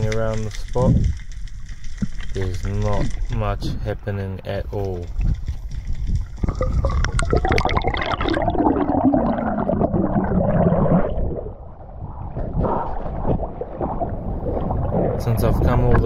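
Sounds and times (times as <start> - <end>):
water sloshing: 0.0 - 16.0
water gurgling and bubbling: 6.2 - 16.0.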